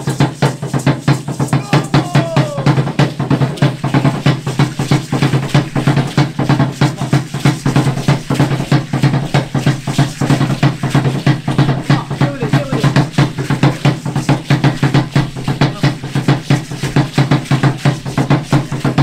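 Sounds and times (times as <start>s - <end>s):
drum playing fast beat: 0.0s - 19.0s.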